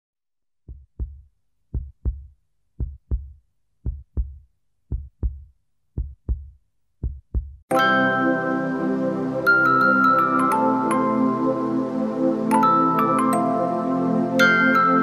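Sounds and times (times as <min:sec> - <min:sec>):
heartbeat thumping: 0:00.7 - 0:07.7.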